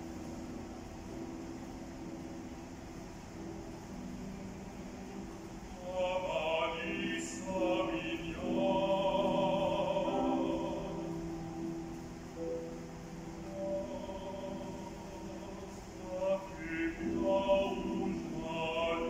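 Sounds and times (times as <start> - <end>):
grand piano: 0.0 - 19.0
man singing opera: 5.7 - 11.8, 13.3 - 19.0.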